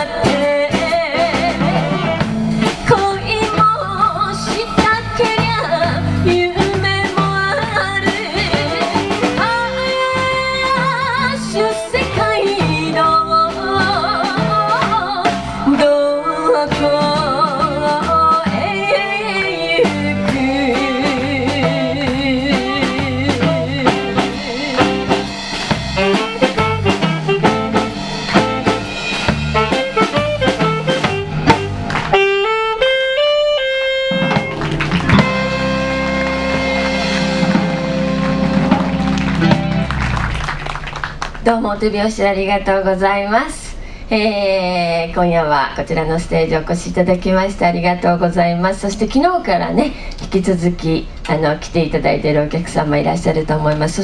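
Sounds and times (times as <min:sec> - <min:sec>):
electric guitar: 0:00.0 - 0:16.0, 0:16.9 - 0:41.4
woman singing: 0:00.0 - 0:25.2
drum kit: 0:00.0 - 0:41.5
bass guitar: 0:00.0 - 0:41.6.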